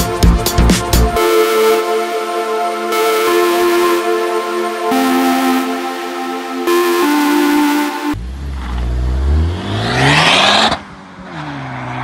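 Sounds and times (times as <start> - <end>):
electronic background music: 0.0 - 8.2
car engine revving: 8.2 - 12.0.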